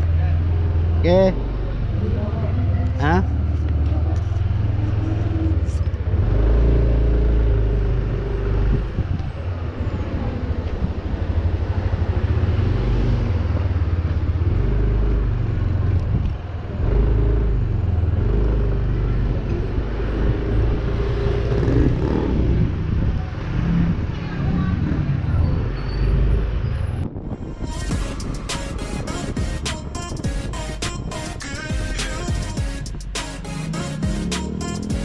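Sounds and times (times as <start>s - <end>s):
scooter engine running: 33.6s - 35.0s.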